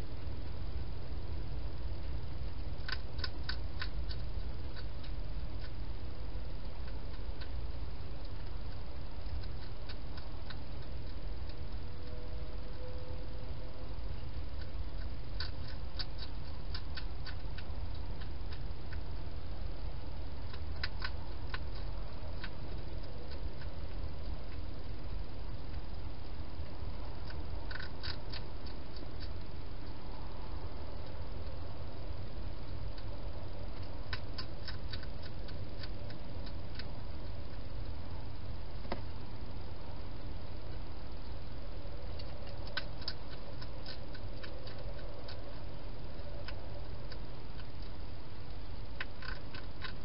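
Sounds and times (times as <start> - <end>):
steady low hum: 0.0 - 50.0
hedgehog chewing clicks and smacks: 2.5 - 12.8, 13.9 - 30.1, 30.8 - 39.2, 40.7 - 50.0.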